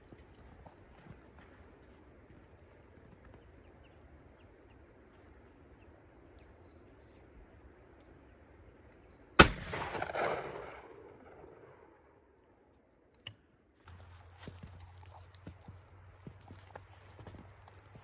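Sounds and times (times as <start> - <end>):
gunshot with echo: 9.4 - 12.0.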